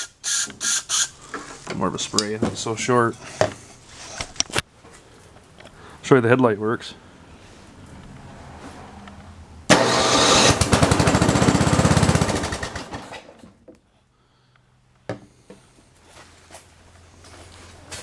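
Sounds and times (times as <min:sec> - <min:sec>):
small engine starting and running: 0:09.7 - 0:13.5.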